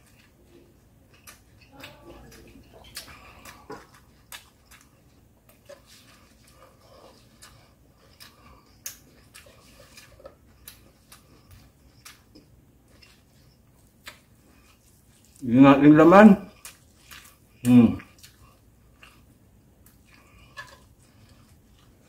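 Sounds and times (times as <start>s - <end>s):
chewing mouth clicks and smacks: 0.0s - 15.4s, 16.5s - 22.0s.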